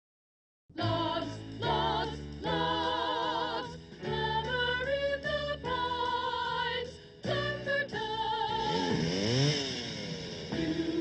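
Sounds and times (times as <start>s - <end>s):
bass line: 0.8s - 11.0s
person singing with vibrato: 7.3s - 9.3s.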